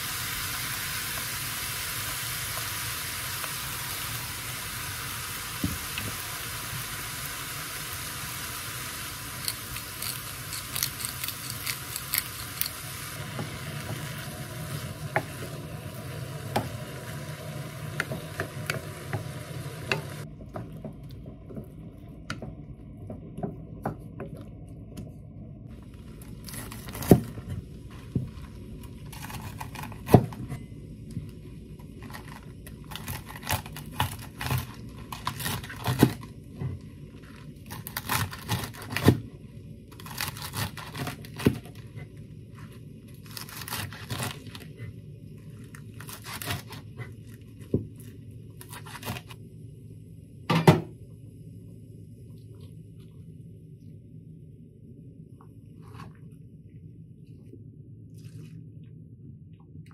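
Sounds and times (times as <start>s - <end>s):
leaves crunching and tearing: 29.0s - 30.1s, 32.0s - 36.2s, 37.6s - 39.0s, 40.0s - 41.5s, 43.2s - 44.7s, 45.7s - 46.8s
knife cutting cabbage: 29.1s - 30.5s, 32.0s - 36.2s, 37.6s - 39.2s, 40.0s - 41.8s, 43.2s - 44.8s, 46.0s - 47.2s, 48.6s - 49.4s.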